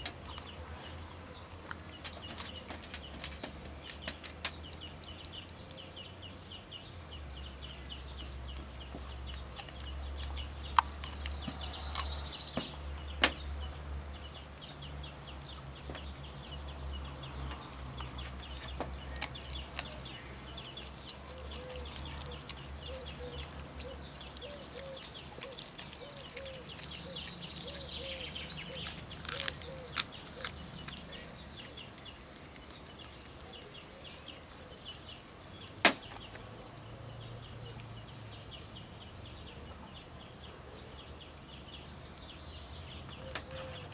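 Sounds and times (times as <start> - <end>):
dog chewing bone: 7.4 - 13.5, 17.3 - 33.6
bone crunching: 7.7 - 13.4, 18.0 - 33.5.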